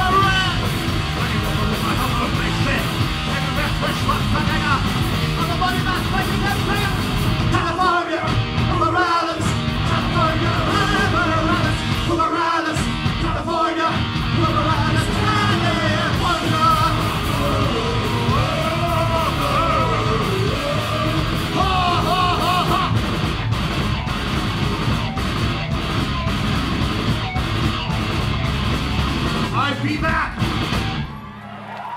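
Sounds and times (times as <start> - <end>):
man yelling and singing: 0.0 - 23.0, 29.5 - 30.4
punk rock band playing: 0.0 - 31.4.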